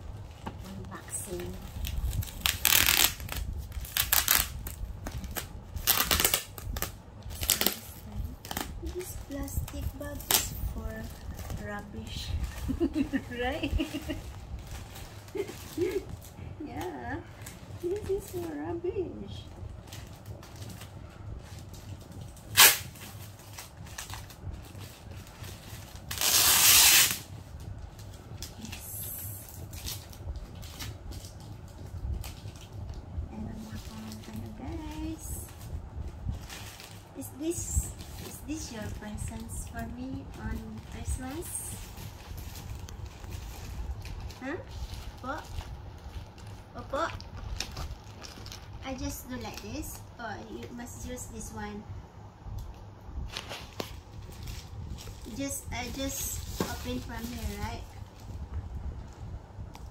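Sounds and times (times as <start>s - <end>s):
plastic bag crinkling: 0.0s - 50.8s, 52.6s - 59.9s
plastic tearing rip: 1.6s - 11.6s, 22.4s - 24.4s, 25.4s - 27.3s.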